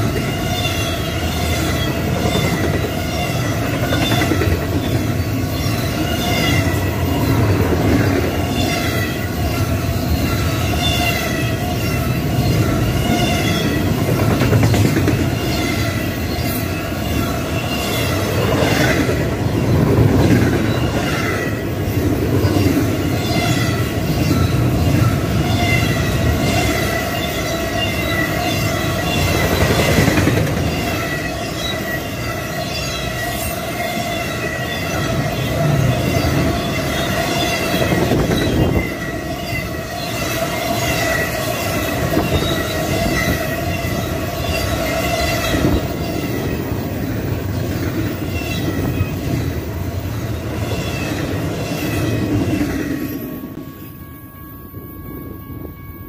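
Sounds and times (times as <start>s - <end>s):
train wheels rumbling on rails: 0.0s - 56.0s
high-pitched wheel squeal: 5.0s - 7.4s.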